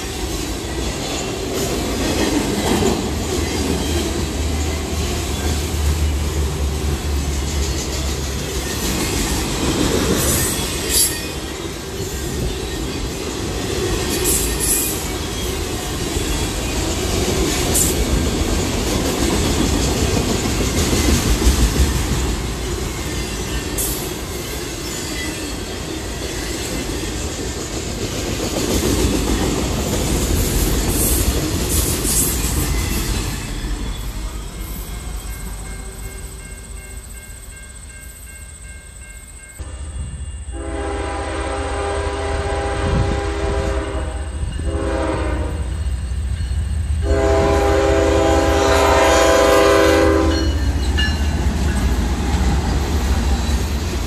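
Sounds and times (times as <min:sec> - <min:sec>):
freight train rolling past: 0:00.0 - 0:54.0
locomotive air horn chord: 0:40.5 - 0:45.7, 0:47.0 - 0:50.5.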